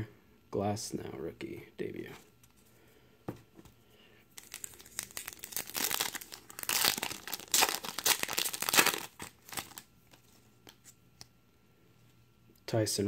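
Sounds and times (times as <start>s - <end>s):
foil wrapper tearing and crinkling: 4.4s - 10.2s.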